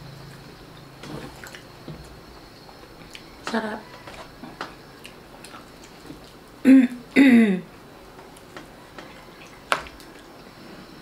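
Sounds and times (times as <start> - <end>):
faint clicks of eating: 2.9 - 6.6.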